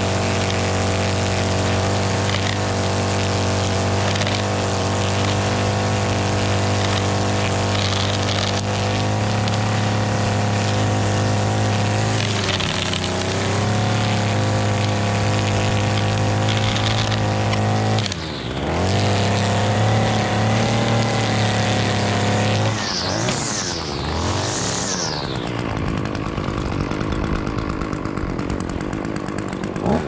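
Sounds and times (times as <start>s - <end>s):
string trimmer engine revving: 0.0s - 30.0s
trimmer line cutting grass: 0.0s - 30.0s.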